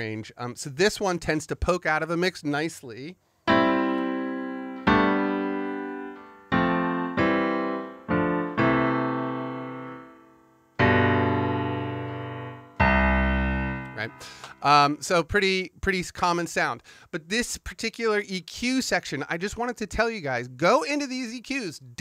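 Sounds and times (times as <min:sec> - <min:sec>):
piano chords ringing: 0:03.5 - 0:15.1.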